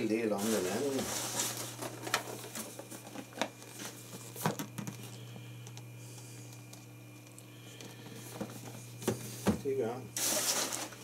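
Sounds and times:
low steady hum: 0.0 - 11.0
cardboard and paper rustling: 0.3 - 5.2, 10.2 - 11.0.

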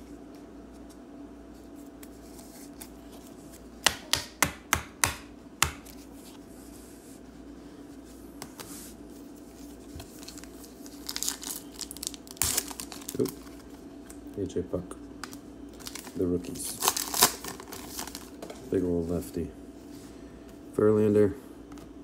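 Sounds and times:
foil pack crinkling: 9.7 - 13.9, 15.2 - 19.3.

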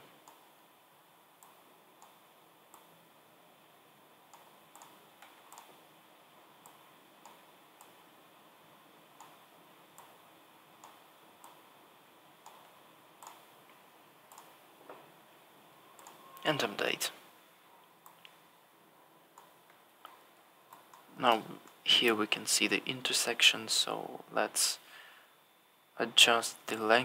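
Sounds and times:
room hiss: 0.0 - 27.0
computer mouse clicks: 0.2 - 0.5, 1.4 - 2.9, 4.3 - 5.8, 6.6 - 8.0, 9.2 - 10.2, 10.8 - 11.6, 12.4 - 13.5, 14.3 - 14.6, 16.0 - 16.2, 19.3 - 21.8.

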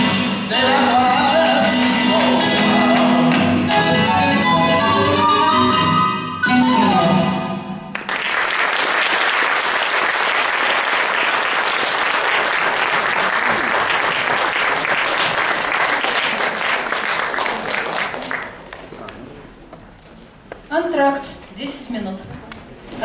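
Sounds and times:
flamenco music: 0.0 - 8.1
audience applauding: 7.9 - 19.4.

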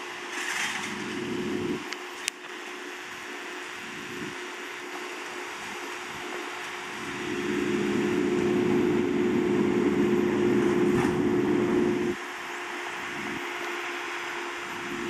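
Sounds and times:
truck engine idling: 0.8 - 1.8, 5.3 - 15.0
truck engine revving humming: 0.8 - 1.8, 6.2 - 15.0.

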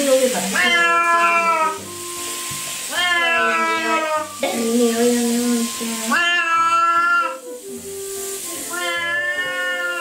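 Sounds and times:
cat yowling: 0.5 - 1.9, 2.9 - 4.4, 6.0 - 7.4, 8.6 - 10.0.

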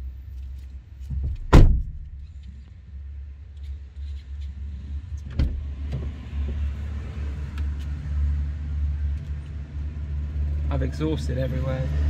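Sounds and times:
sharp knock: 1.3 - 2.2.

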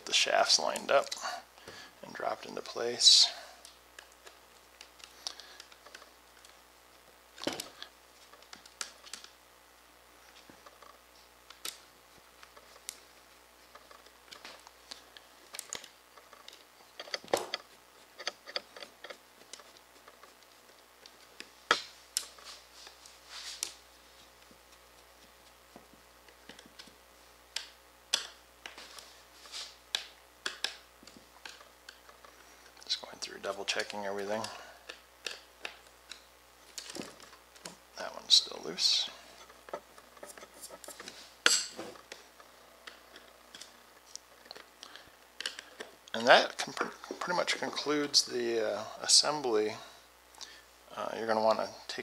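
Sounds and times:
screwdriver clicking on acrylic: 27.5 - 28.4, 29.9 - 32.3.

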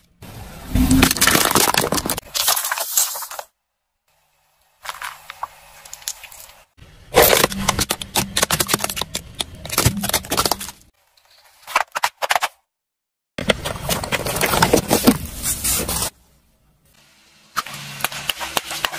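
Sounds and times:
plastic toys cracking under tyre: 7.2 - 10.9.

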